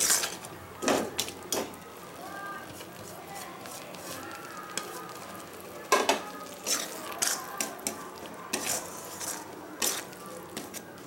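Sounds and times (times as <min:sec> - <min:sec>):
spatula scraping metal pan: 0:00.0 - 0:00.5, 0:06.6 - 0:10.8.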